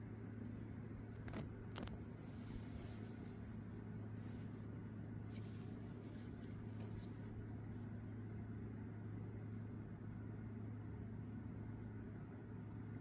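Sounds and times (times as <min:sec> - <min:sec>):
air conditioner humming: 0:00.0 - 0:13.0
blanket rustling: 0:02.0 - 0:08.2.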